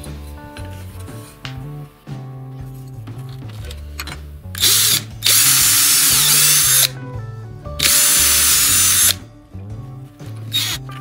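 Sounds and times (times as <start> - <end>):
background music: 0.0 - 11.0
electric drill boring wood: 4.6 - 6.9, 7.8 - 9.2, 10.5 - 10.8.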